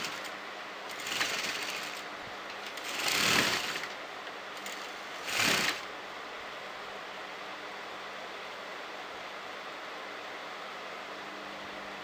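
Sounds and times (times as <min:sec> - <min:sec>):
sewing machine stitching: 0:00.0 - 0:04.0, 0:04.6 - 0:05.9.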